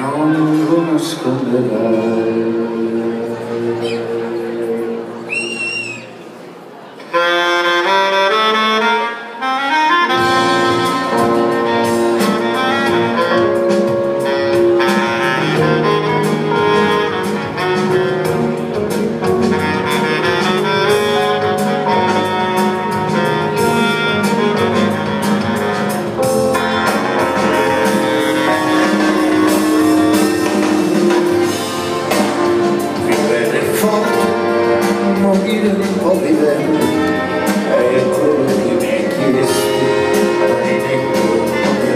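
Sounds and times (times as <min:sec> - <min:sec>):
live band playing instrumental: 0:00.0 - 0:41.9.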